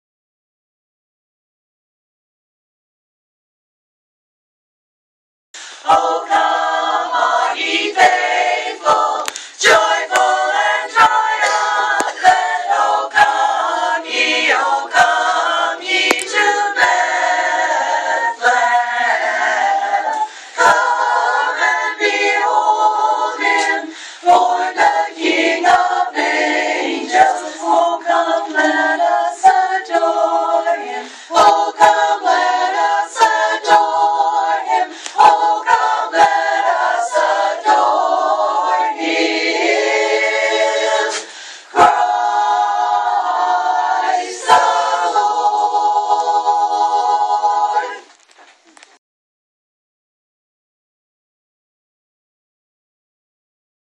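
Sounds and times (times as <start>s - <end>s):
women's chorus singing a cappella: 5.6s - 48.1s.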